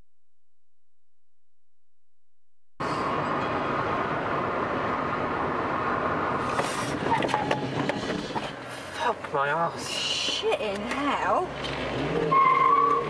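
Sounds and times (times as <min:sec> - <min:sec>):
car road and engine noise: 0:02.8 - 0:13.0.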